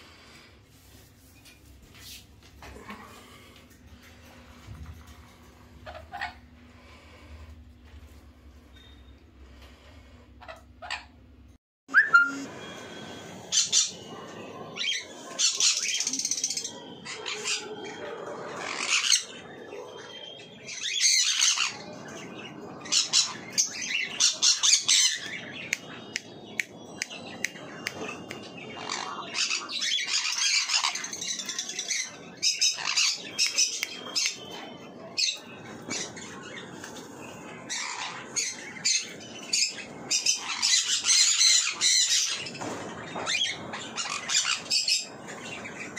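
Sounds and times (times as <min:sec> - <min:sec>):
parrots screeching: 0:05.8 - 0:06.5, 0:10.4 - 0:11.2, 0:13.4 - 0:14.2, 0:14.8 - 0:21.9, 0:22.8 - 0:25.7, 0:28.2 - 0:34.5, 0:37.7 - 0:45.9.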